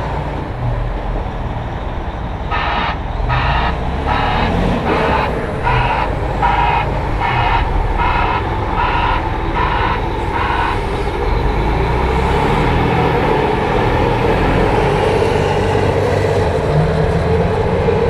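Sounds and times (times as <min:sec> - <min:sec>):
diesel engine running: 0:00.0 - 0:18.0
beeping alarm: 0:02.5 - 0:10.9.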